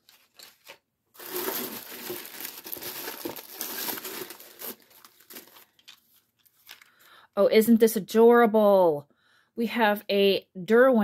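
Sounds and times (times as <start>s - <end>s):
tissue paper crinkling: 0.0s - 7.1s.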